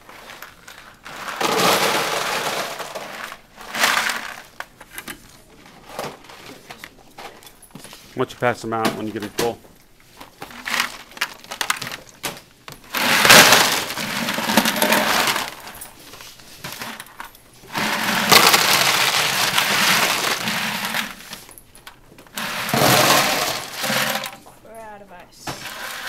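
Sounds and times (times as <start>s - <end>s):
ice cubes clattering into a plastic tub: 0.1s - 4.7s, 10.4s - 15.9s, 16.6s - 24.5s, 25.5s - 26.0s.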